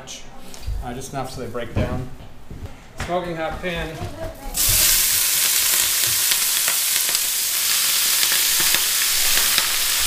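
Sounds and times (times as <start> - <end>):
greens sizzling in hot oil: 4.6 - 10.0
small crackles: 4.6 - 10.0.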